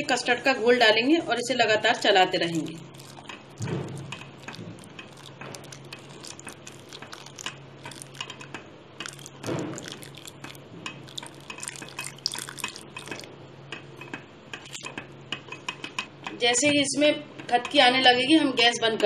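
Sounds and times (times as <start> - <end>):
low steady hum: 0.0 - 18.7
liquid sloshing: 1.9 - 15.1
spatula stirring in a pan: 2.3 - 13.3.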